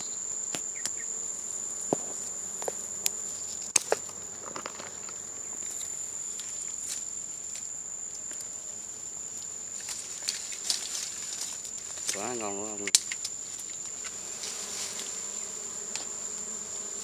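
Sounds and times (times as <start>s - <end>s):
insect trilling: 0.0s - 1.6s, 9.6s - 17.0s
dry twigs snapping: 9.8s - 12.3s.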